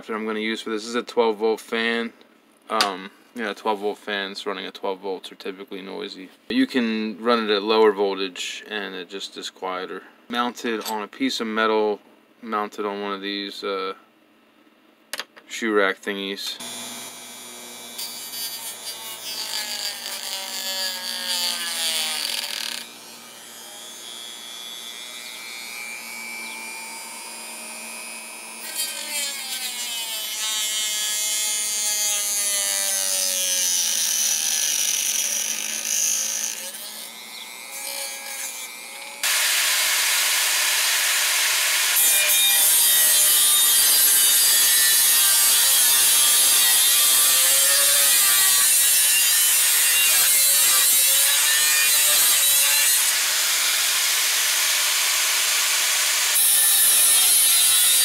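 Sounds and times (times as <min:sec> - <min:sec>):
angle grinder cutting metal: 0:16.6 - 0:58.0
rotary tool cutting metal: 0:16.6 - 0:58.0.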